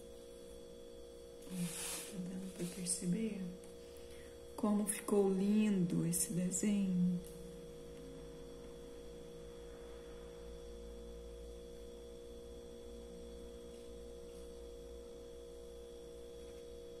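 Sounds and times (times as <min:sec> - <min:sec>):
electrical hum: 0:00.0 - 0:17.0
faint high whine: 0:00.0 - 0:17.0.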